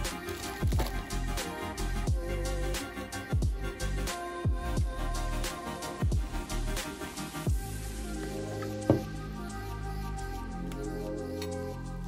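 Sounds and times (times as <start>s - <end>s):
bass line: 0.0s - 6.8s, 7.4s - 11.2s
background music with steady beat: 0.0s - 12.0s
deep kick drum: 3.4s - 3.6s, 4.5s - 5.0s, 7.5s - 7.7s.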